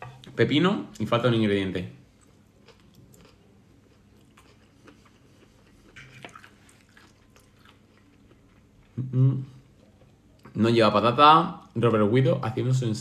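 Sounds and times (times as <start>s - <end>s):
person chewing food: 2.1s - 9.0s.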